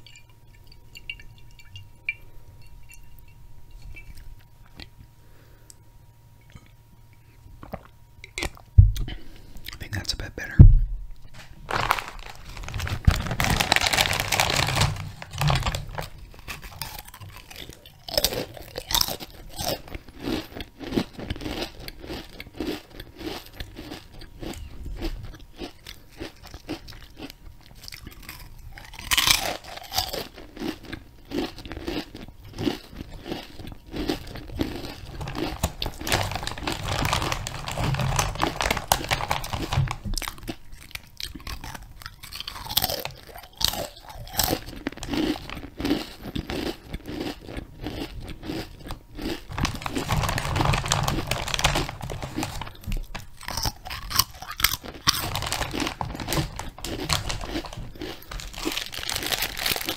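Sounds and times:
person crunching and chewing food: 0:03.2 - 0:05.8, 0:06.4 - 0:10.5, 0:11.2 - 0:59.9.

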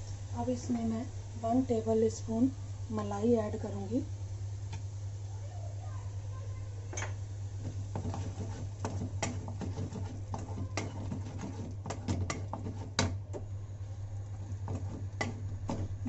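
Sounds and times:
steady low hum: 0:00.0 - 0:16.0
wooden spoon scraping a pan: 0:07.6 - 0:13.2, 0:14.5 - 0:16.0.

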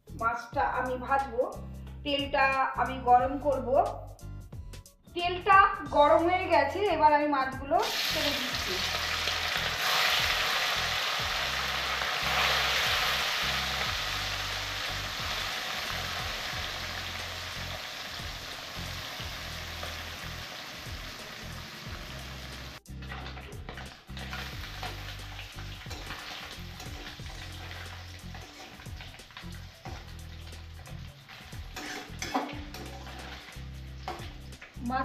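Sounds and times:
fish sizzling in hot oil: 0:07.8 - 0:34.8.

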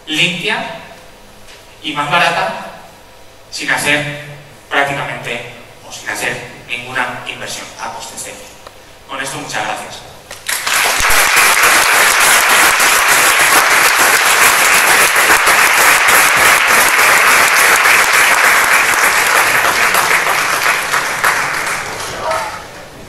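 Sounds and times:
audience applauding: 0:10.4 - 0:22.7.

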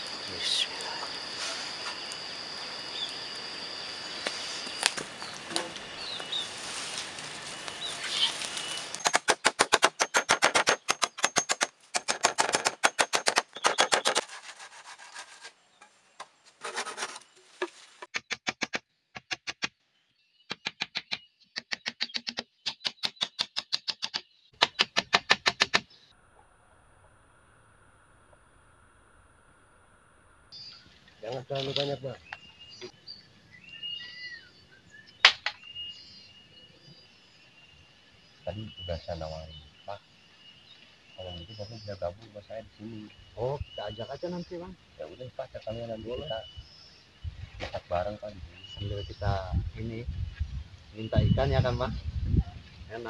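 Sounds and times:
birds chirping: 0:00.0 - 0:06.8, 0:07.4 - 0:11.8, 0:12.6 - 0:14.2, 0:30.5 - 0:53.0
wood fire burning: 0:00.0 - 0:09.1
insect high tone: 0:00.0 - 0:09.4, 0:25.9 - 0:53.0
hatchet striking bamboo: 0:09.0 - 0:15.0, 0:17.6 - 0:19.8, 0:20.5 - 0:25.9.

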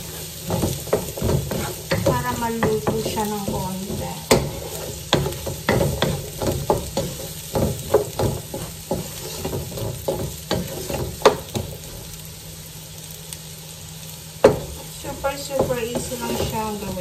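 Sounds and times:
wooden spoon scraping a pan: 0:00.0 - 0:12.1, 0:14.4 - 0:17.0
vegetables sizzling in oil: 0:00.0 - 0:17.0.

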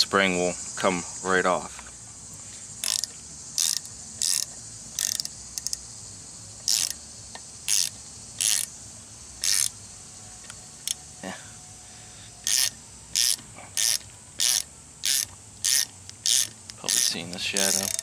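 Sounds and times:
socket ratchet clicking: 0:02.8 - 0:05.9, 0:06.6 - 0:08.8, 0:09.4 - 0:09.8, 0:12.4 - 0:18.0.

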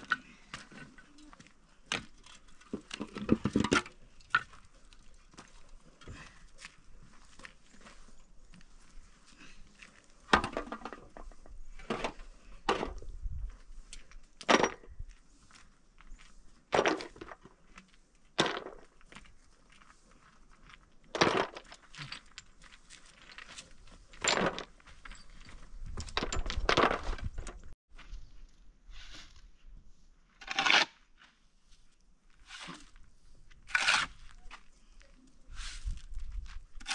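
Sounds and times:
concrete blocks knocking and clinking: 0:01.9 - 0:04.6, 0:25.9 - 0:27.4.

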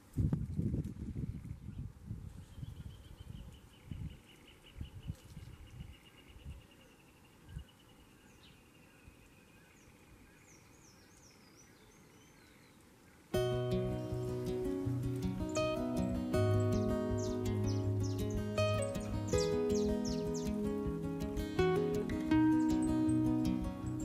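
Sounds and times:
high bird chirps: 0:13.4 - 0:24.0
music: 0:13.4 - 0:24.0.

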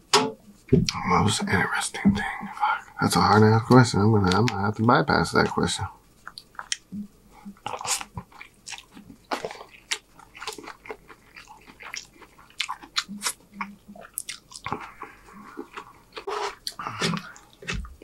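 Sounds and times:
wet mouth smacks and clicks: 0:06.2 - 0:08.9
close-miked chewing noodles: 0:06.2 - 0:18.0.

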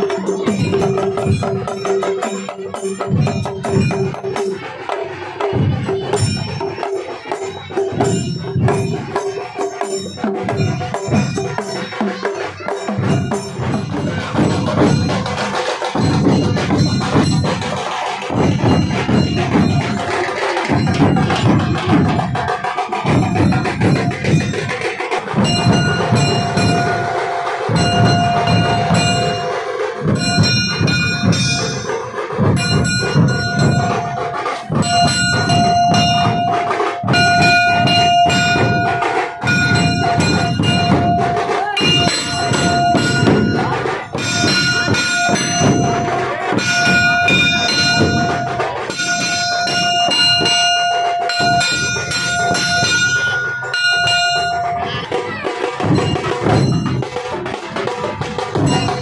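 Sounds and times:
drum band playing barrel drums: 0:00.0 - 0:59.0
high steady pitched tone: 0:32.5 - 0:57.1.

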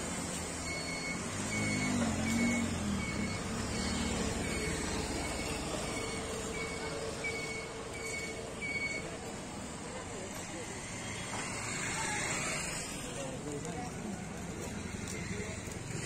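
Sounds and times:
traffic noise: 0:00.0 - 0:16.0
short high beeps: 0:00.6 - 0:09.2.

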